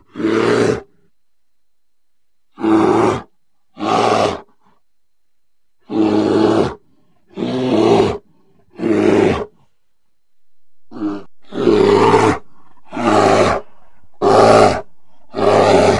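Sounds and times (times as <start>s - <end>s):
bear roaring: 0.0s - 1.0s, 2.5s - 4.6s, 5.8s - 9.7s, 10.9s - 15.9s.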